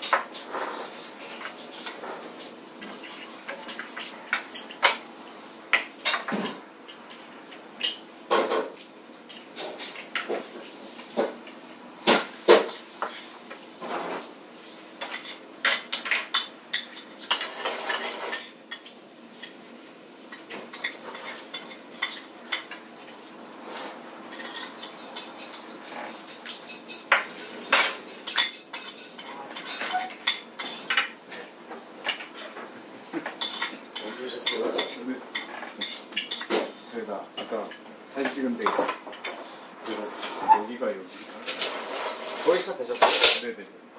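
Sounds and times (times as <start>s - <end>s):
chopsticks and spoons clinking on plates: 0.0s - 5.0s, 15.0s - 19.6s, 20.3s - 23.1s, 24.3s - 40.0s.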